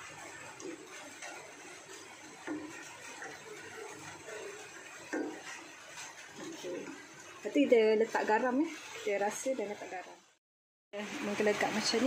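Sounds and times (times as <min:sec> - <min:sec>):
liquid sloshing in a pan: 0:00.0 - 0:10.4
spatula tapping a pan: 0:00.5 - 0:06.5.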